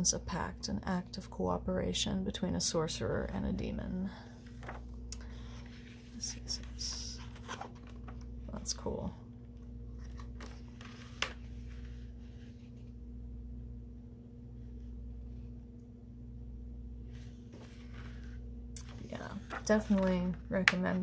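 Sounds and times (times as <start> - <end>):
steady low hum: 0.0 - 21.0
book page rustle: 4.4 - 8.4, 9.9 - 13.0, 17.1 - 20.4.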